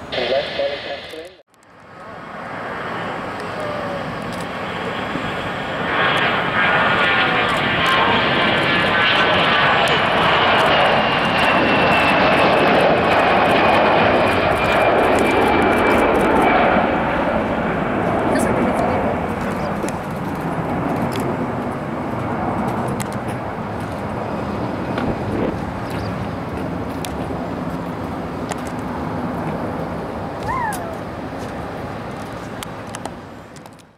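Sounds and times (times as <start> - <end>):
high jet whine falling in pitch: 0.0 - 18.5
jet engine roar: 0.0 - 33.9.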